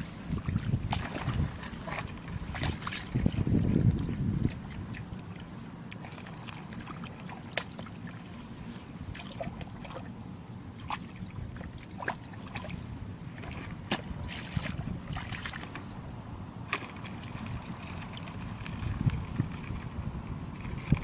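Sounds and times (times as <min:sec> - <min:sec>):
squelches and splashes in mud: 0:00.0 - 0:16.0.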